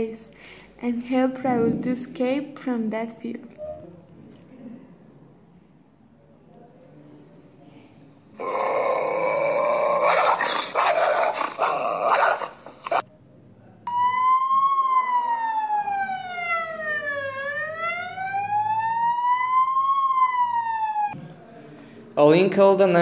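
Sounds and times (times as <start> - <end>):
dog-like growling and snarling: 8.4 - 13.0
emergency siren wail: 13.9 - 21.2.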